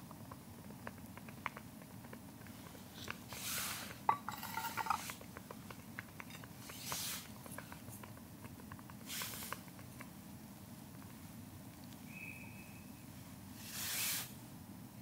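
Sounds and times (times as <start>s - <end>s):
metal cookware clinking: 4.1s - 5.1s.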